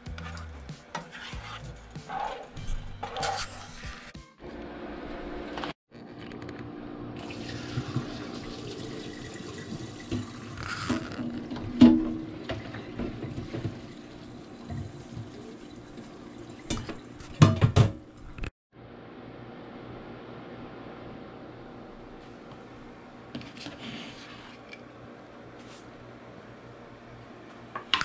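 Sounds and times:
water pouring into a sink: 7.2 - 17.2.

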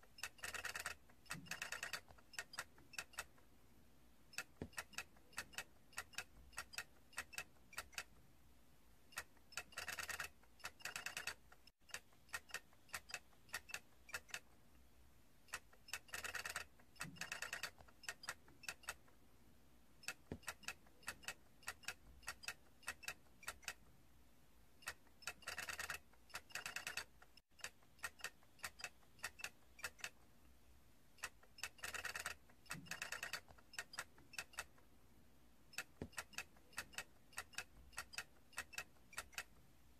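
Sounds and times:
toy clicking and ticking: 0.0 - 3.4, 4.3 - 8.2, 9.1 - 14.6, 15.5 - 19.2, 20.0 - 23.9, 24.8 - 30.3, 31.2 - 34.9, 35.7 - 39.6.

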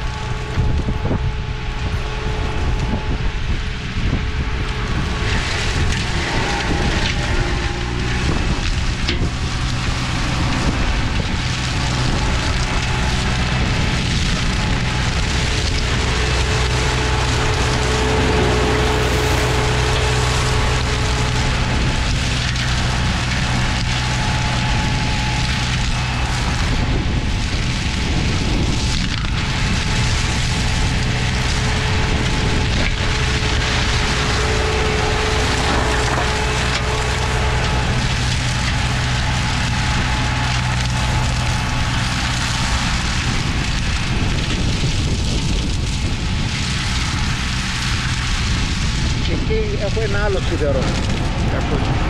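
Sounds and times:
mower engine running under load: 0.0 - 52.0
flail head shredding brush: 4.2 - 46.1.

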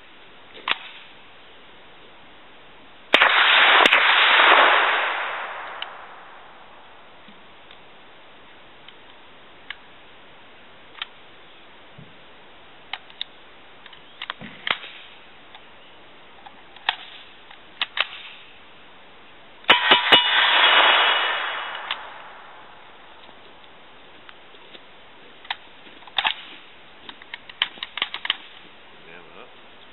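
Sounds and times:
suppressed gunshots: 3.1 - 6.8, 14.5 - 15.2, 16.8 - 18.5, 19.7 - 23.0
metallic clicks of gun handling: 25.4 - 28.6.

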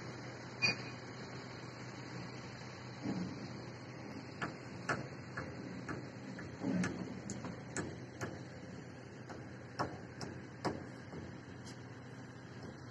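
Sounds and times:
low machinery hum: 0.0 - 12.9
sharp clicks and knocks: 4.4 - 8.5.

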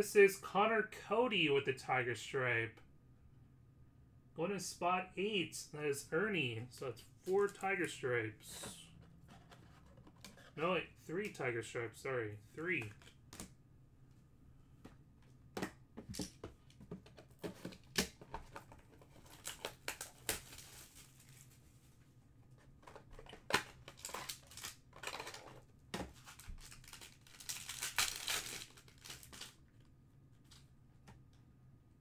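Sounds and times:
wrapper crinkling and tearing: 19.2 - 21.6, 23.4 - 25.5, 26.2 - 29.6.

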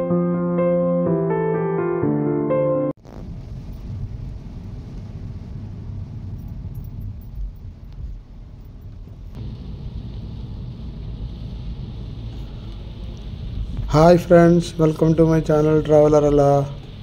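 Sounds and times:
car road and engine rumble: 3.2 - 17.0
tyre hiss on wet road: 9.0 - 17.0.

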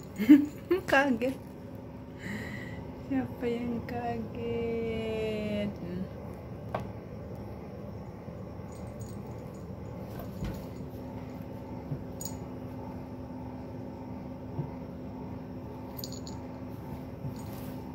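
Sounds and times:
steady low hum: 0.0 - 17.9
collar bell jingling: 8.7 - 9.8, 16.0 - 16.4.

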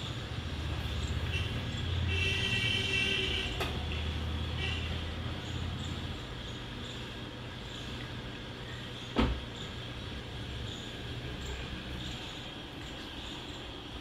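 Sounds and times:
car horn: 1.3 - 5.1.

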